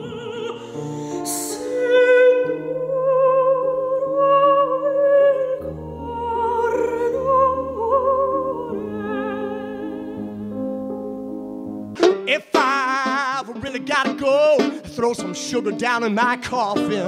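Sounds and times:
woman singing opera: 0.0s - 10.4s.

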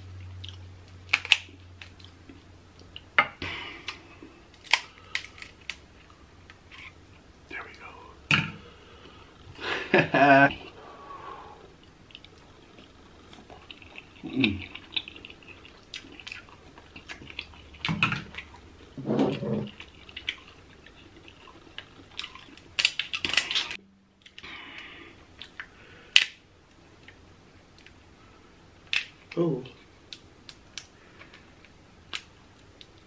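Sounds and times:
crab shell cracking: 1.0s - 2.1s, 4.5s - 5.8s, 21.8s - 24.4s
chewing and slurping: 11.8s - 24.4s.

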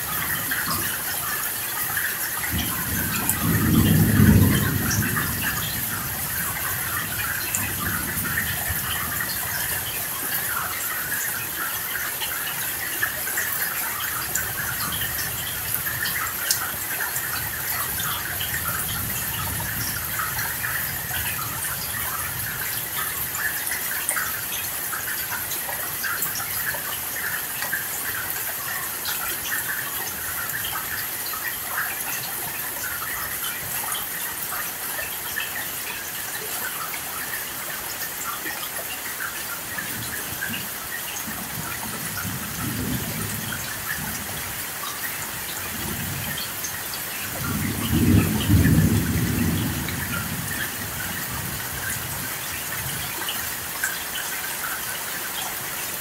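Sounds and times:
heavy rain falling: 0.0s - 56.0s
distant thunder rumbling: 2.4s - 9.7s, 47.3s - 52.2s.

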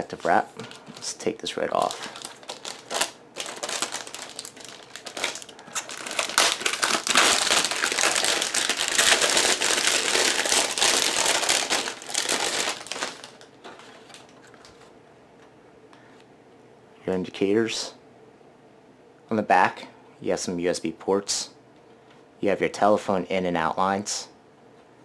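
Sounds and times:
plastic film crinkling: 0.0s - 14.9s.

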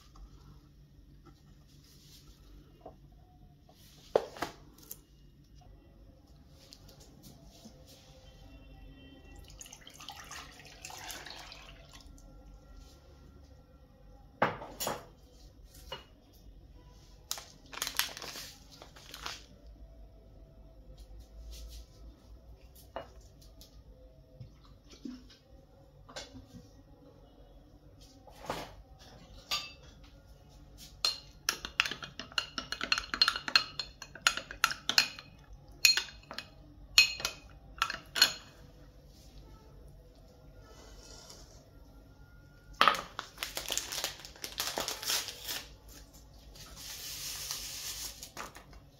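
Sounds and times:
liquid pouring: 9.4s - 12.3s
dishes clinking on countertop: 14.4s - 15.1s, 28.4s - 30.1s, 31.0s - 38.6s, 42.8s - 43.2s.

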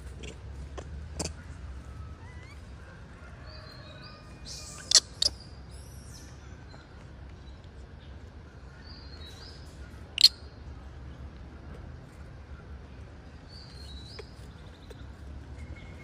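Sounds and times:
low steady rumble: 0.0s - 16.0s
high-pitched animal chirps: 4.5s - 5.4s, 10.2s - 10.4s.

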